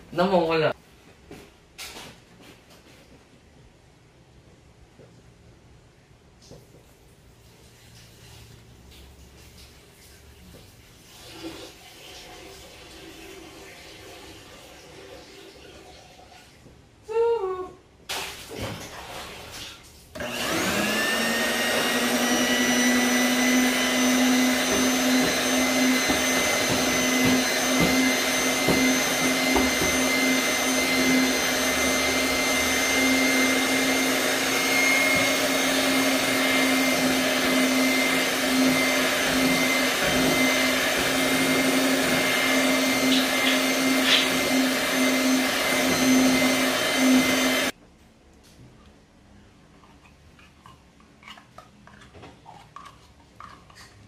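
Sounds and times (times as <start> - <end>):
electric mixer motor whining: 20.2 - 47.7.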